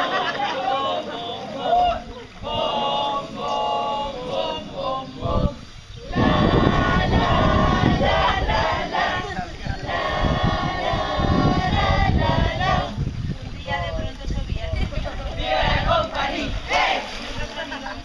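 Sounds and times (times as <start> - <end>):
young voices singing and chanting: 0.0 - 18.0
water splashing in a pool: 13.2 - 18.0.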